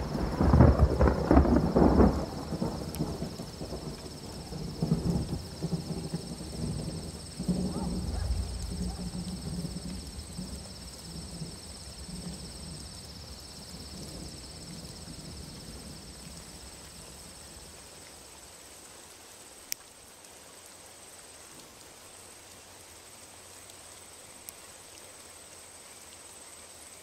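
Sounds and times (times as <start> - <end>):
low rumble of thunder: 0.0 - 17.8
crickets chirping: 0.0 - 27.0.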